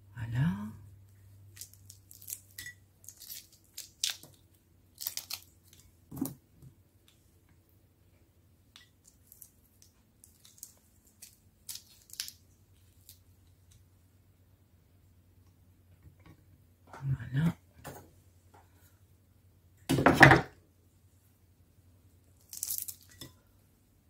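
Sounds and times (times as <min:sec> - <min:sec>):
prawn shells crackling: 0:01.5 - 0:05.9, 0:09.0 - 0:13.2, 0:22.4 - 0:23.2.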